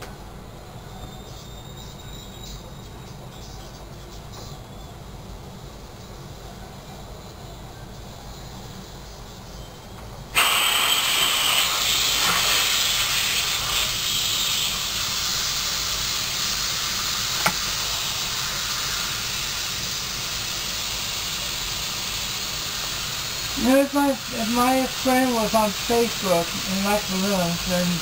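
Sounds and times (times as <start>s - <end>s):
air hissing out of a balloon: 10.3s - 28.0s
sharp click: 17.4s - 17.7s.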